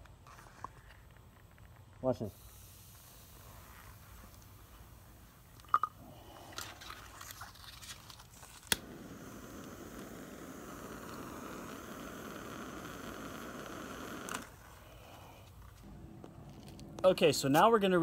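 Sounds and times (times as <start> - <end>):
flame hissing: 2.2 - 17.8
lighter clicking: 8.6 - 14.6.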